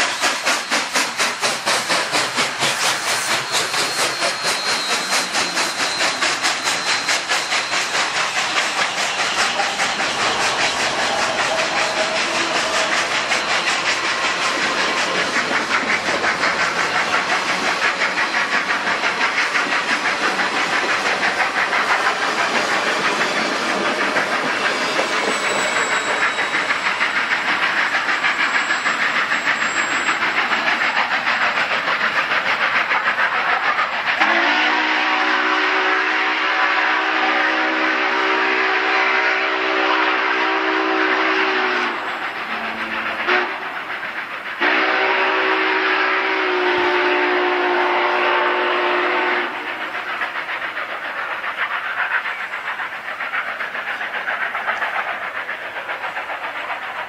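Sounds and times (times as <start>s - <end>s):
wheels clattering on rails: 0.0s - 34.2s
steam hissing from locomotive: 0.0s - 57.0s.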